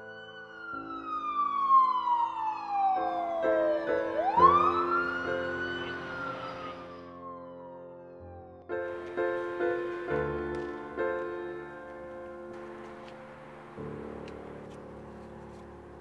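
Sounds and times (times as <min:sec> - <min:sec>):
siren wailing: 0:00.0 - 0:12.1
piano music: 0:00.0 - 0:16.0.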